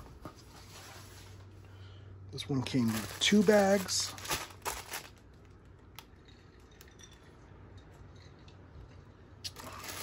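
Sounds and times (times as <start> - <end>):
plastic bags clicking: 2.6 - 6.1, 9.5 - 10.0.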